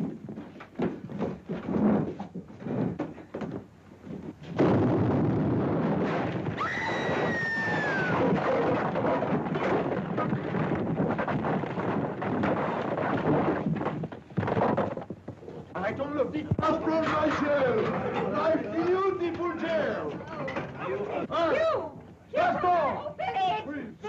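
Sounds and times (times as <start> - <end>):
bomb explosion: 4.5 - 13.0
falling stone rumble: 4.5 - 15.4.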